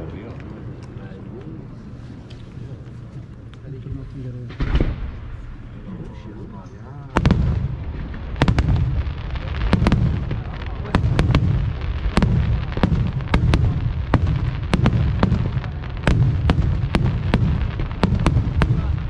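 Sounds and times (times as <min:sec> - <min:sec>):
rumble of booms and echoes: 0:03.3 - 0:19.0
fireworks bangs: 0:04.0 - 0:06.2, 0:07.1 - 0:19.0.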